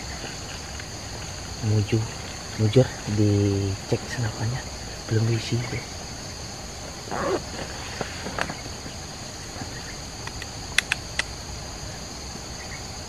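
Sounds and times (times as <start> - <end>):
insects droning: 0.0 - 13.0
air rifle clicks: 10.3 - 11.3.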